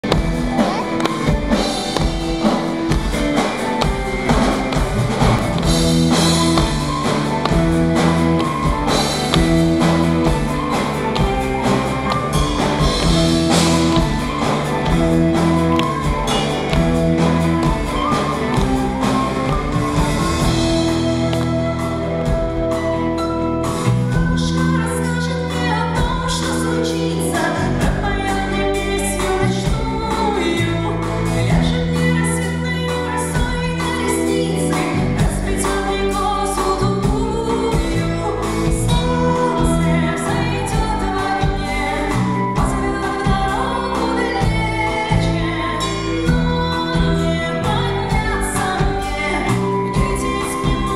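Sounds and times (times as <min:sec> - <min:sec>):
drum kit beat: 0:00.0 - 0:24.8
electric guitars: 0:00.0 - 0:50.9
woman singing lead: 0:00.0 - 0:50.9.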